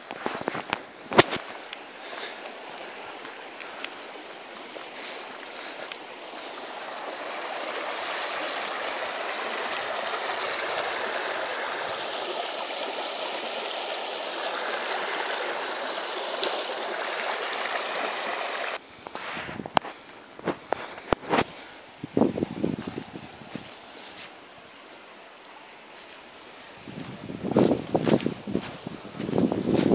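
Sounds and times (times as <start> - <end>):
river water rushing: 0.0 - 18.8.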